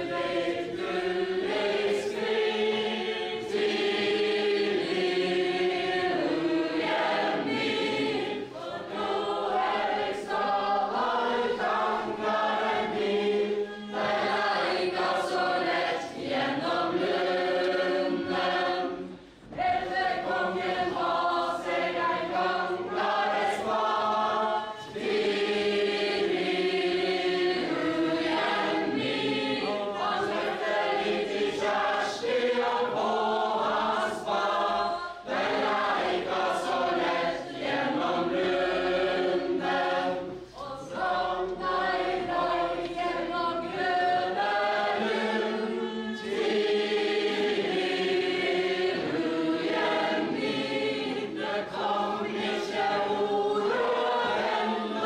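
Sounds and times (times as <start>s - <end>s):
group singing unaccompanied: 0.0s - 55.0s.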